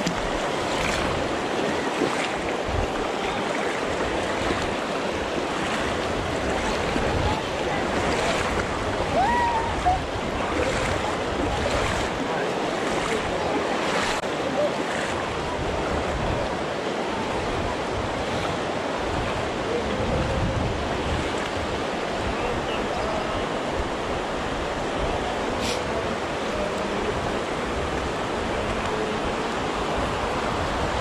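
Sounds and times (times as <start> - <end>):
river rushing: 0.0 - 31.0
water splashes: 0.0 - 31.0.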